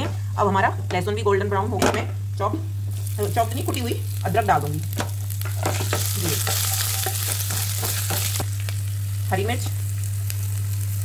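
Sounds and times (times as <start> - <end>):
steady low hum: 0.0 - 11.0
spices sizzling in hot oil: 2.7 - 11.0.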